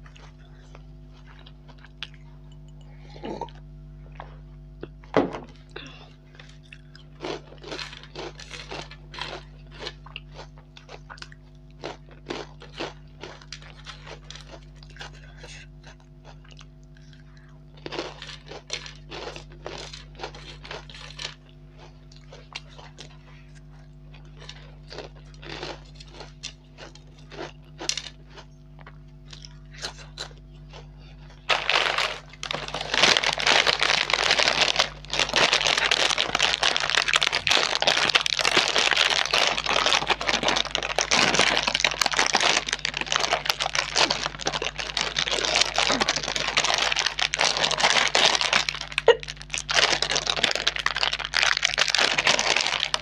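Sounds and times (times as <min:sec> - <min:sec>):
crunchy snacks being chewed: 0:00.0 - 0:53.0
plastic packet crinkling: 0:07.2 - 0:10.4, 0:31.5 - 0:53.0.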